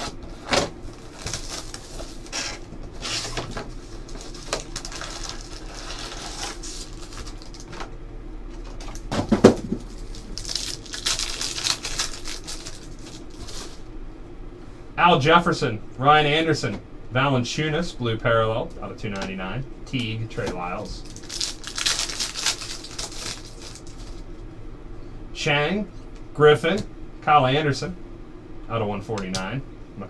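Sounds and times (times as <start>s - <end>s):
foil pack crinkling: 0.0s - 7.9s, 8.5s - 13.9s, 21.0s - 24.3s
plastic wrap and cardboard rustling: 0.0s - 7.9s, 8.6s - 13.9s, 21.0s - 24.3s.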